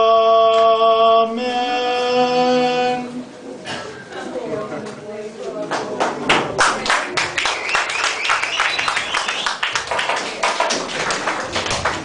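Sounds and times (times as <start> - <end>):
audience applauding: 6.0 - 12.0
wavering whistle: 7.6 - 9.6.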